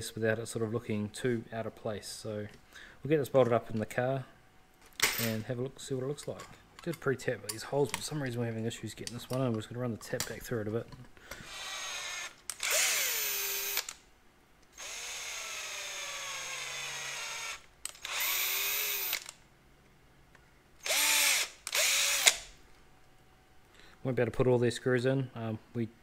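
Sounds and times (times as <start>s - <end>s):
drill motor whine: 11.4s - 13.9s, 14.8s - 19.3s, 20.8s - 22.4s.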